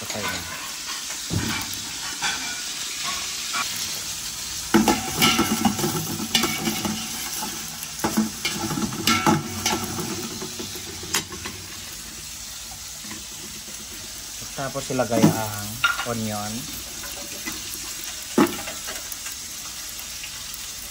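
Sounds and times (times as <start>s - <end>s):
garlic sizzling in hot oil: 0.0s - 20.9s
utensil scraping and knocking pot: 4.7s - 11.9s.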